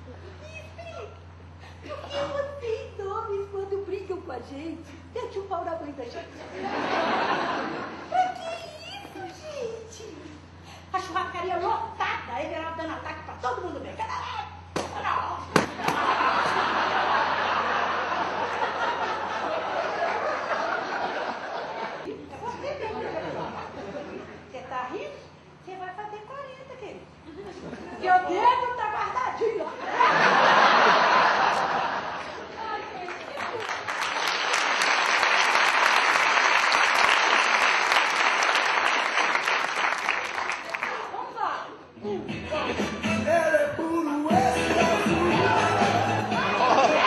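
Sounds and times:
audience laughing: 0:06.3 - 0:08.3, 0:15.6 - 0:24.4, 0:29.7 - 0:32.8, 0:44.7 - 0:47.0
audience applauding: 0:33.0 - 0:41.1.

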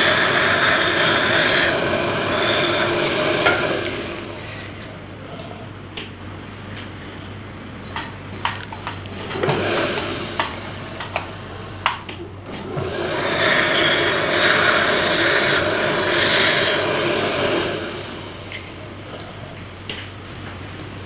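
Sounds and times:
dental suction hiss: 0:00.0 - 0:04.4, 0:12.8 - 0:18.6
instruments clicking and knocking: 0:07.9 - 0:12.8.

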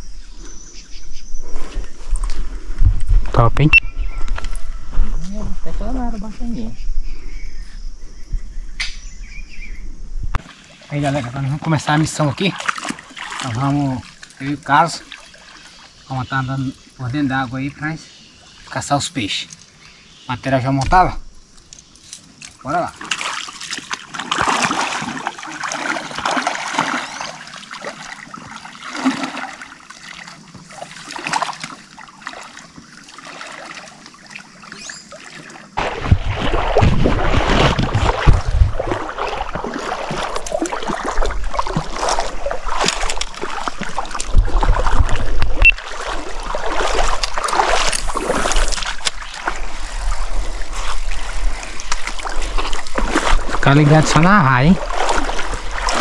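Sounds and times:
water splashing from wading: 0:10.4 - 0:16.2, 0:22.3 - 0:56.0.

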